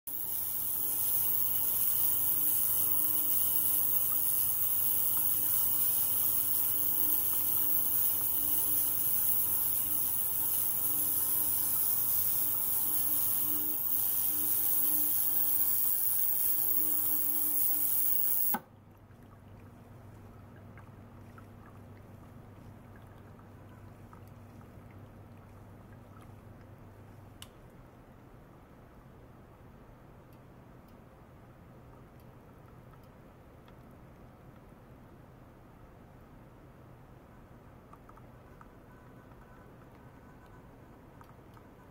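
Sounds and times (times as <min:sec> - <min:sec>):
high-pitched cavitation hiss: 0:00.1 - 0:18.6
water flow from pump: 0:00.1 - 0:26.7.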